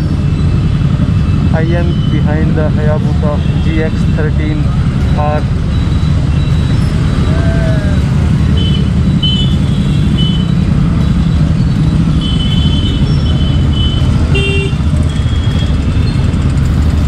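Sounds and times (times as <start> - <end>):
motorcycle engines running: 0.0 - 17.0
short horn beeps: 8.6 - 10.6.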